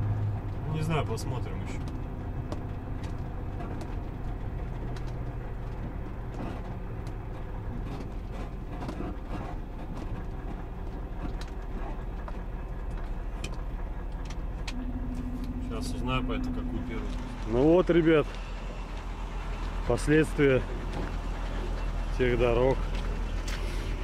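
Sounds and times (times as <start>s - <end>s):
diesel truck engine hum: 0.0s - 24.0s
faint clicks and rattles: 1.4s - 15.6s.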